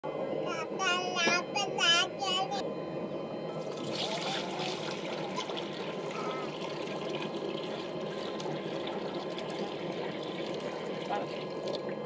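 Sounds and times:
water pouring into a metal pot: 0:03.6 - 0:12.0.

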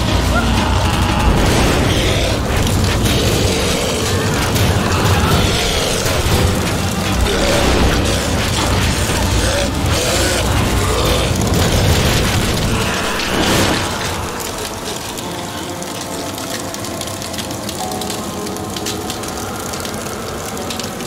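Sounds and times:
booms: 0:00.0 - 0:15.1
music: 0:00.0 - 0:21.0.

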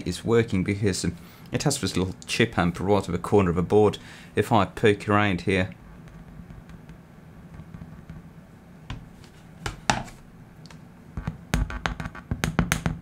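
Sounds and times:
speaker popping and thumping: 0:11.2 - 0:13.0.

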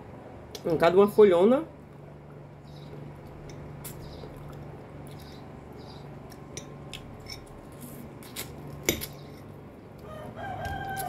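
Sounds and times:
people chewing: 0:02.8 - 0:11.0
fork scraping glass plate: 0:07.2 - 0:09.5.

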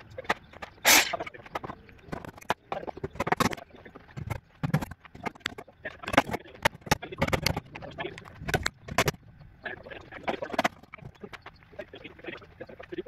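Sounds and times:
hammer driving nails into wood: 0:00.9 - 0:01.2.

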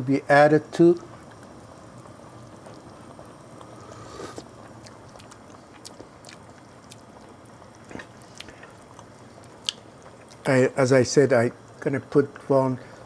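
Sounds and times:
lip smacks and mouth clicks: 0:09.6 - 0:10.4.

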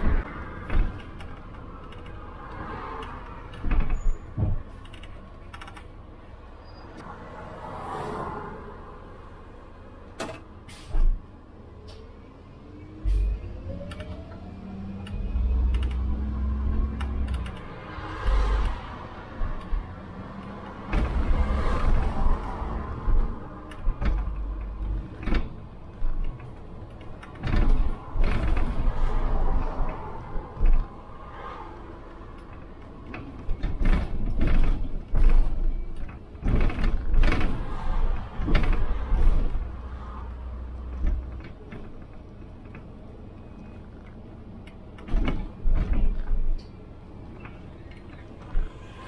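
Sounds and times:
bus body rattling and creaking: 0:00.0 - 0:49.0
bus engine rumble: 0:00.0 - 0:49.0.

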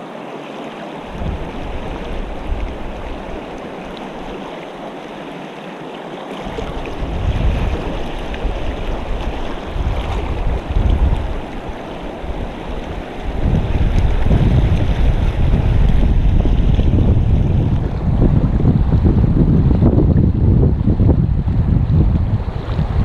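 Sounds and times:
river rushing over rocks: 0:00.0 - 0:18.1
wind buffeting microphone: 0:01.0 - 0:04.9, 0:06.4 - 0:23.0.

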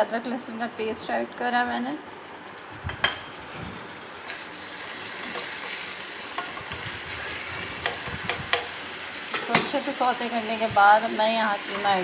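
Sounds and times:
food sizzling in hot oil: 0:02.4 - 0:12.0.

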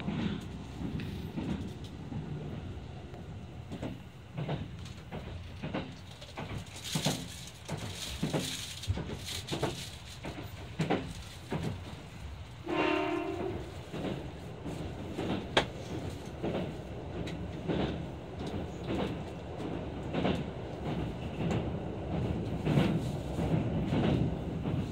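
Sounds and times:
train running low rumble: 0:00.0 - 0:24.9
wheels clicking over rail joints: 0:03.7 - 0:12.0
train horn: 0:12.6 - 0:13.8.

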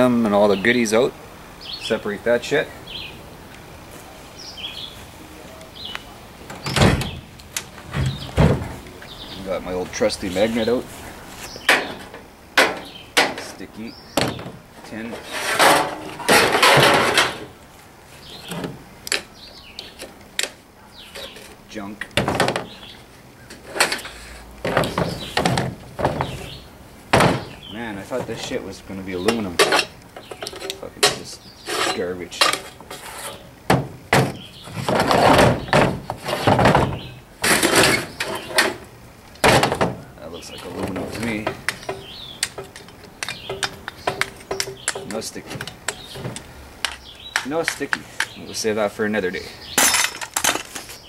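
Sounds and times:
scrap metal scraping and clanking: 0:14.4 - 0:17.5, 0:23.5 - 0:26.6, 0:29.2 - 0:33.5, 0:34.3 - 0:38.9
light metal knocks: 0:40.6 - 0:48.4.

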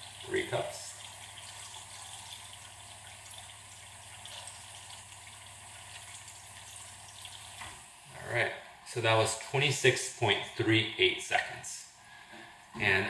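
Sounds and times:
water stream filling a glass cup: 0:00.0 - 0:07.9.

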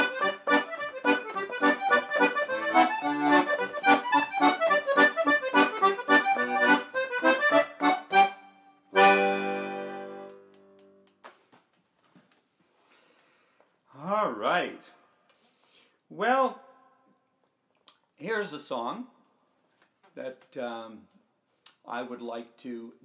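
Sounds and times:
accordion playing lively tune: 0:00.0 - 0:10.5.

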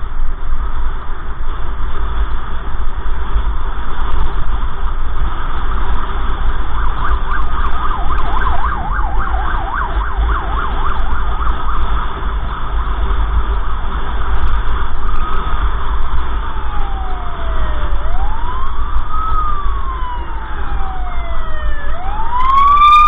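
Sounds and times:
car driving rumble: 0:00.0 - 0:23.0
siren yelping: 0:06.7 - 0:12.0, 0:16.3 - 0:23.0.

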